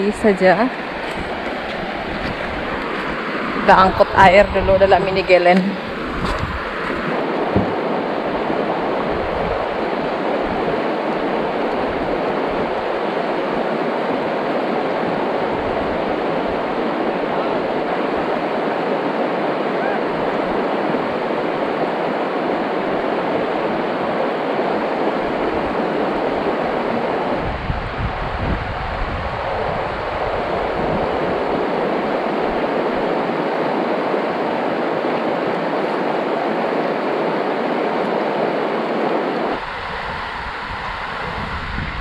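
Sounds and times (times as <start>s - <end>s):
water rushing over rocks: 0.0s - 42.0s.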